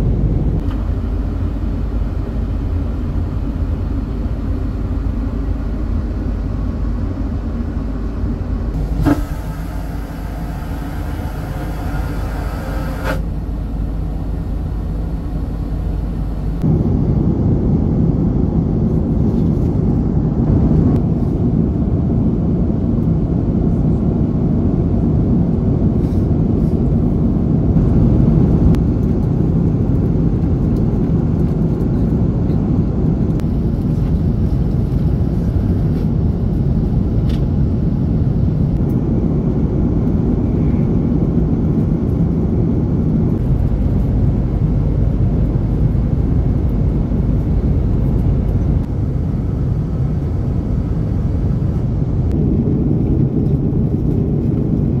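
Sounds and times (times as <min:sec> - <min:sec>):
airliner cabin noise: 0:00.0 - 0:55.0.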